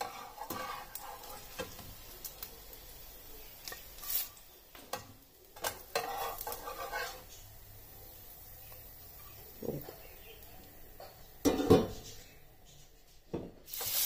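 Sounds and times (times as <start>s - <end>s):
metal spatula clicking and scraping: 0.0s - 2.5s, 3.6s - 7.4s
hot oil sizzling: 0.0s - 14.0s.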